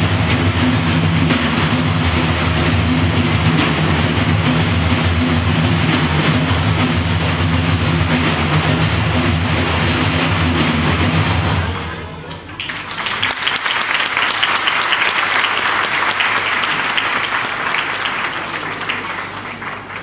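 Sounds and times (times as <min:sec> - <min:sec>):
frame drums drumming: 0:00.0 - 0:12.1.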